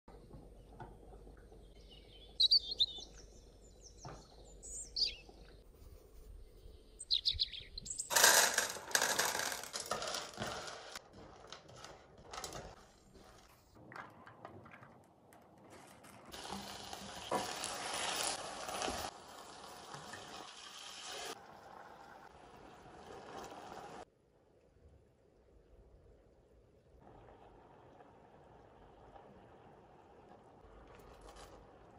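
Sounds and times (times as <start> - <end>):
sizzling in a pan: 16.3 - 24.1.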